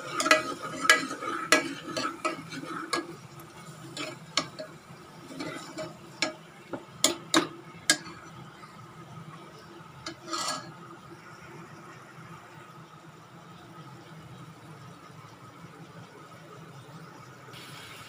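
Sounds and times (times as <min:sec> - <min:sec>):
spoon scraping metal pot: 0:00.0 - 0:06.4, 0:10.1 - 0:10.8
food frying in oil: 0:00.0 - 0:18.0.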